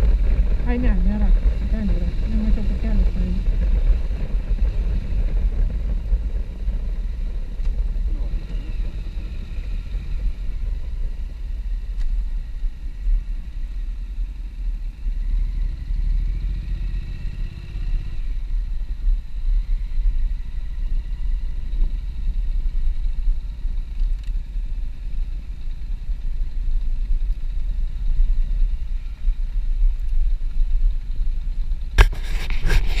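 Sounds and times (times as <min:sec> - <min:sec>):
loud crackling noise: 0:00.0 - 0:11.2
wind on microphone: 0:00.0 - 0:14.4, 0:16.2 - 0:33.0
motorcycle engine rumble: 0:00.0 - 0:33.0.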